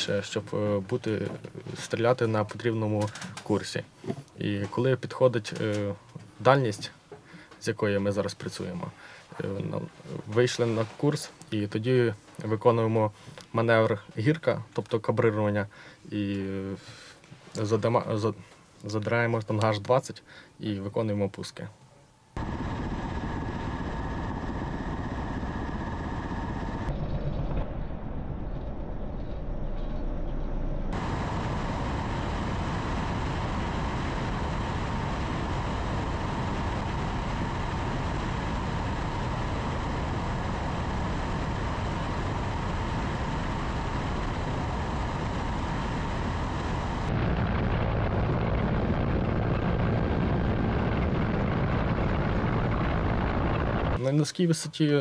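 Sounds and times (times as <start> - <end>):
helicopter engines and rotor: 22.4 - 27.8, 30.8 - 54.0.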